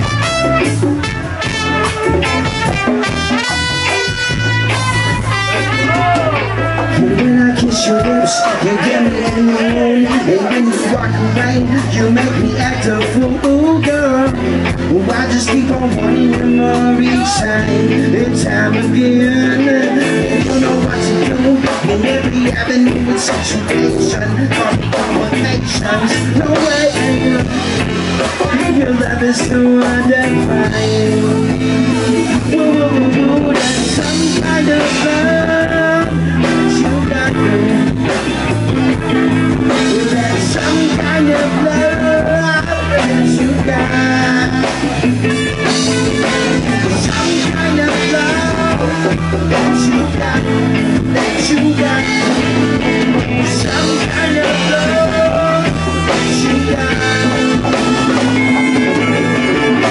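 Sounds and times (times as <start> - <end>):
congas: 0.0 - 9.4
bass guitar: 0.0 - 59.9
drum kit: 0.0 - 59.9
electric guitars: 0.0 - 59.9.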